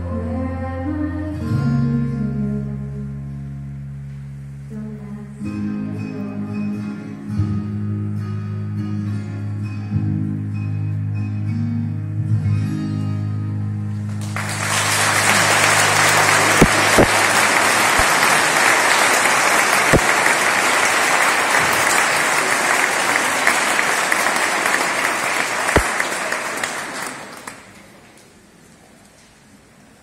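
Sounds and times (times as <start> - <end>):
audience applause: 14.1 - 28.0.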